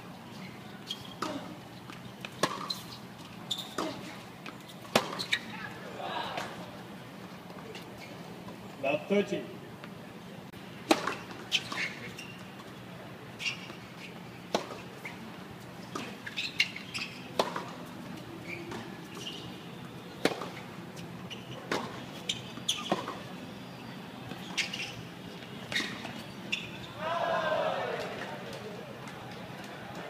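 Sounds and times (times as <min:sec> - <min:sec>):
tennis ball bouncing on court: 0:01.2 - 0:02.8, 0:04.8 - 0:05.4, 0:10.8 - 0:11.4, 0:14.5 - 0:14.9, 0:17.4 - 0:17.8, 0:20.2 - 0:20.6, 0:21.7 - 0:22.0, 0:22.7 - 0:23.2.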